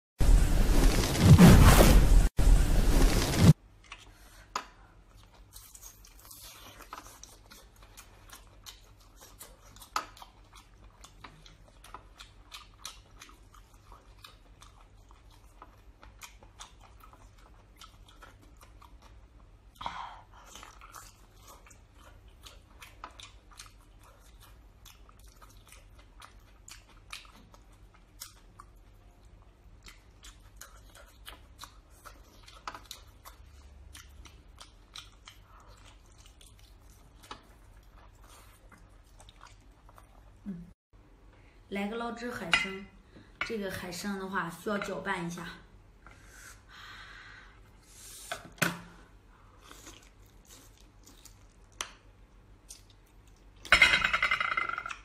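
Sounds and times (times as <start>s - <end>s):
chewing: 3.8s - 40.6s, 49.4s - 53.7s.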